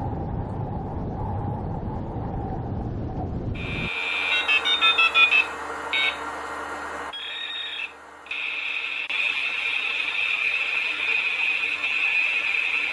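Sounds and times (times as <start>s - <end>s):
low wind noise: 0.0s - 7.2s
short electronic beeps: 3.6s - 6.2s
steady high-pitched electronic tone: 3.6s - 6.4s, 7.1s - 12.9s.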